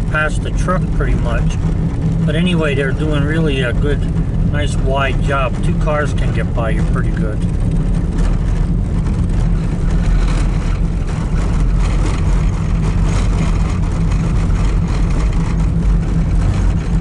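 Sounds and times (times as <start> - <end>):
car engine and tyre drone: 0.0 - 17.0.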